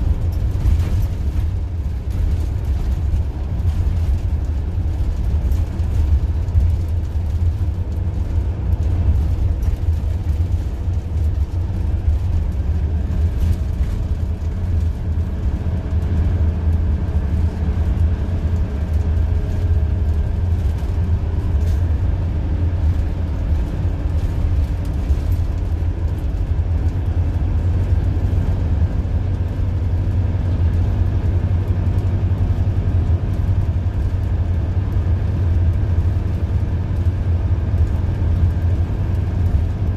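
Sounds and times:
bus engine rumble: 0.0 - 39.9
road noise: 0.0 - 39.9.

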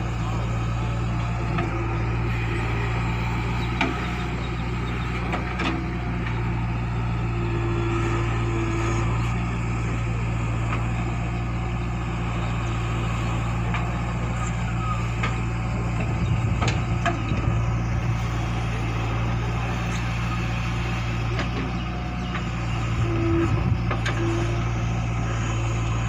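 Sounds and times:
diesel engine running under load: 0.0 - 26.0.

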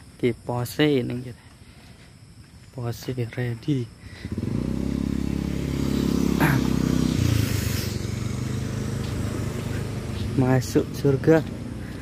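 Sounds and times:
motor scooter engine passing: 4.1 - 12.0.

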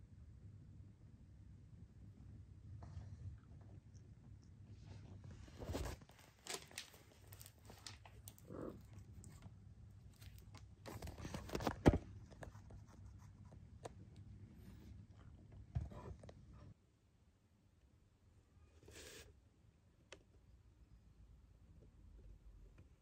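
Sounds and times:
cat rustling on a rug: 4.7 - 11.7.

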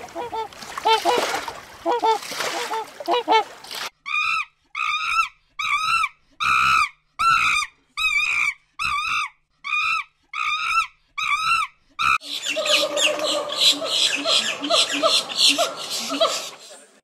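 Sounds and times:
monkey calling: 4.1 - 16.9.

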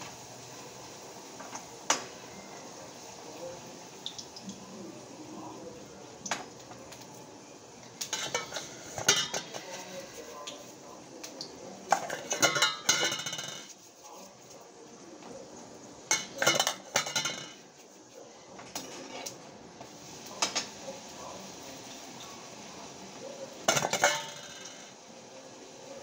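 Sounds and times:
metal ladle clinking on pan: 8.0 - 9.7, 11.9 - 13.7, 16.1 - 17.6, 23.7 - 24.9.

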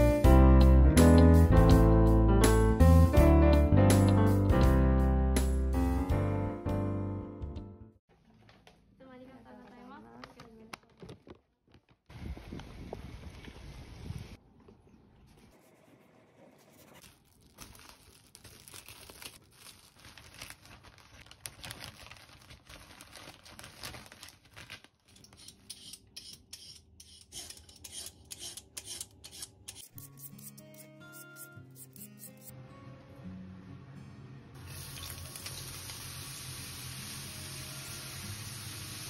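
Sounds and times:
soft music: 0.0 - 8.0, 30.0 - 39.0
plastic bag crinkling: 17.0 - 25.4.

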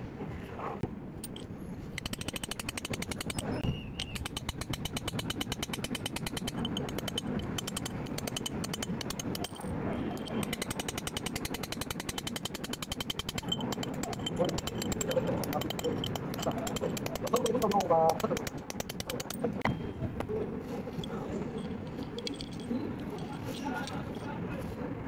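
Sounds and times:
fast mechanical clicks: 1.2 - 19.6.

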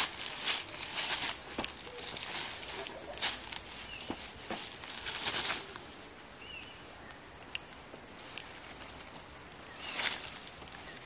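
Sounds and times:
branch snapping: 0.0 - 5.9
tree branches rustling: 0.0 - 11.0
bird chirp: 3.8 - 4.5, 5.5 - 7.3, 9.6 - 11.0.

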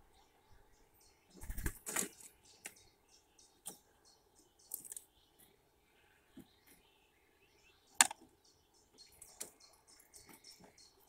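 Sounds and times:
bird wings flapping: 1.4 - 2.1.

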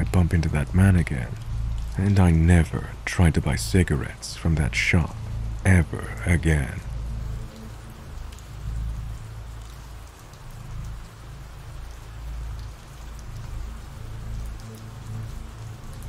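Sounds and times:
low rumble: 0.0 - 14.5
steady rain hiss: 0.0 - 16.0.

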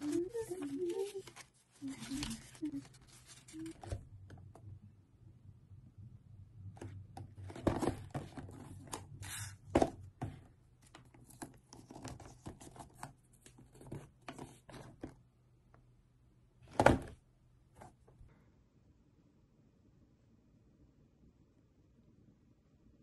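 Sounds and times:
paper and cardboard rustling: 0.0 - 4.0, 7.4 - 15.2.

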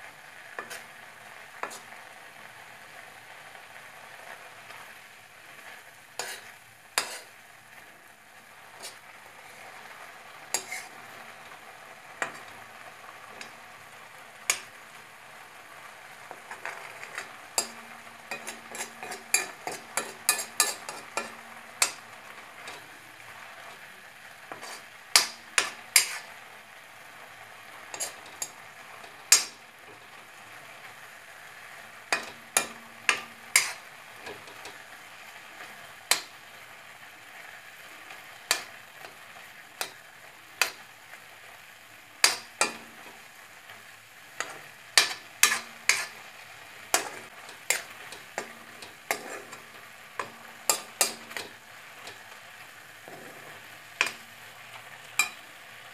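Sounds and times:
faint sizzle of frying: 0.0 - 55.9
metal spatula scraping steel pan: 0.6 - 0.8, 1.6 - 1.8, 6.2 - 7.3, 8.8 - 9.0, 10.5 - 11.0, 16.5 - 22.0, 24.5 - 26.3, 27.9 - 29.6, 32.1 - 34.8, 44.4 - 46.2, 46.9 - 52.2.

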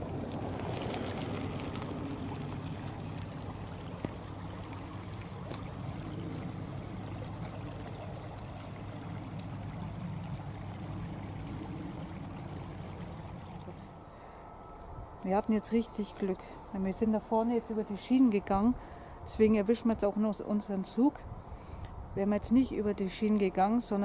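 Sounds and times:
shallow stream flowing: 0.0 - 14.5.

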